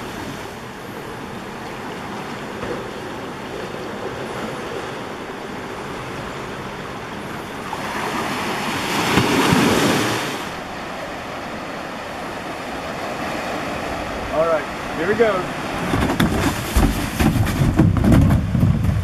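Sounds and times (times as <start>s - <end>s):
ocean surf washing: 0.0s - 19.0s.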